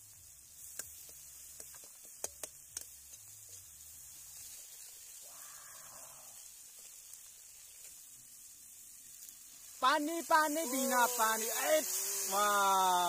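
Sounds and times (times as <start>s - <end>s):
spices sizzling in oil: 0.0s - 13.0s.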